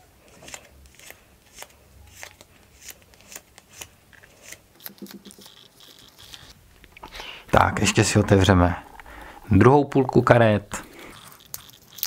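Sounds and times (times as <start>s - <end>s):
cards sliding with papery clicks: 0.2s - 6.6s.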